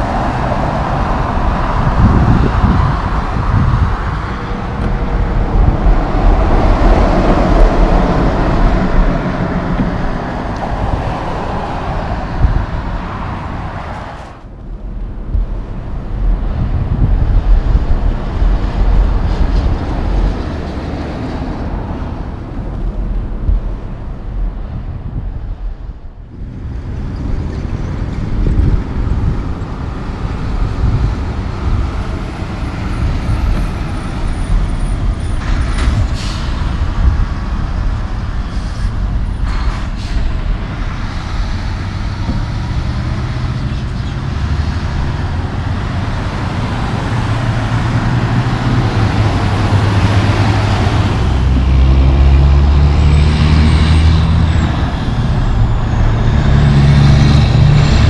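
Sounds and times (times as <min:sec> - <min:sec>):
road traffic passing: 0:00.0 - 0:58.0
truck diesel engines: 0:00.0 - 0:58.0.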